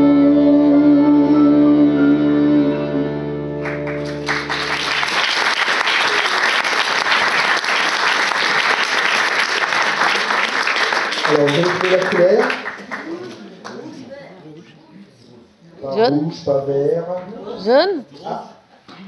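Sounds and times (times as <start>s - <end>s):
audience applause: 3.6s - 13.8s.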